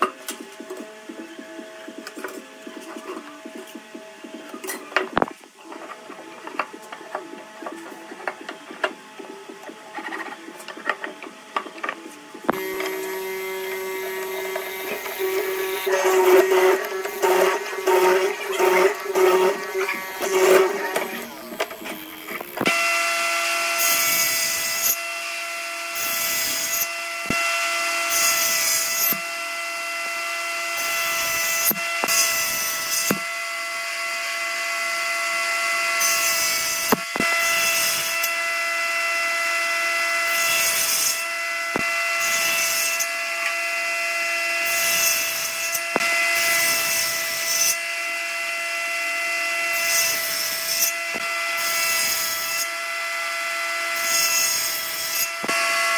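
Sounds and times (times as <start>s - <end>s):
power tool motor whine: 0.0s - 55.9s
tool cutting into wood: 12.5s - 23.0s, 30.8s - 33.3s, 36.0s - 38.4s, 40.2s - 43.6s.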